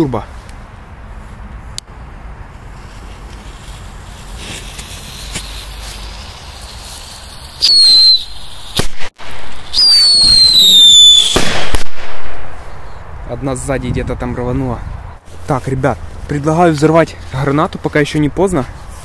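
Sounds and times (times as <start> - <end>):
firecracker high whistle: 4.4 - 12.4
firecracker bangs: 7.6 - 12.6.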